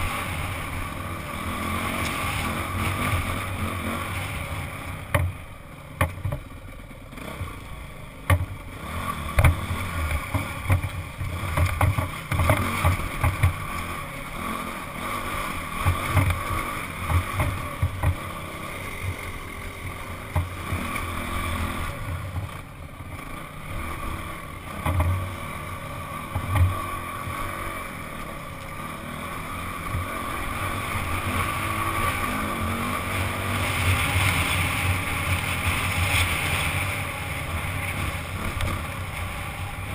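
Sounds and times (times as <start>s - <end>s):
dirt bike engine running: 0.0s - 39.9s
knocks and thumps from bumps: 5.1s - 5.4s, 6.0s - 6.5s, 8.2s - 8.5s, 9.3s - 13.6s, 17.0s - 18.2s, 24.8s - 25.2s.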